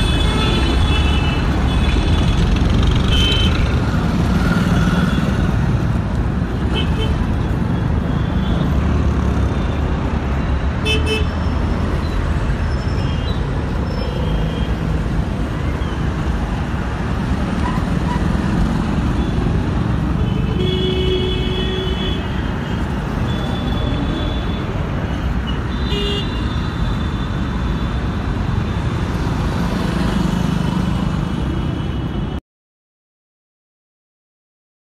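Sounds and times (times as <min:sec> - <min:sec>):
street traffic noise: 0:00.0 - 0:32.4.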